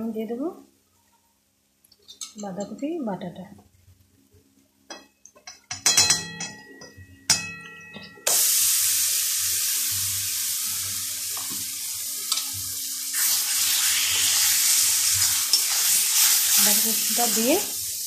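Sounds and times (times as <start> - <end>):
metal clinks and ringing: 4.9 - 8.3
paste sizzling in hot oil: 8.3 - 18.0.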